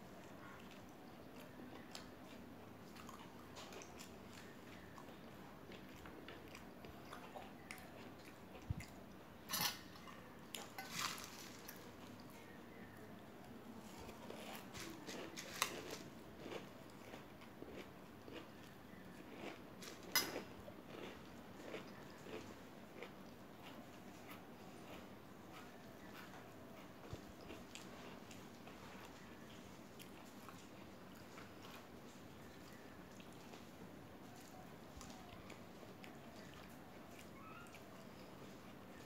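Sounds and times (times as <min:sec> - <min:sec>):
chewing and crunching: 0:00.1 - 0:39.0
spoon scraping a steel bowl: 0:09.5 - 0:09.9.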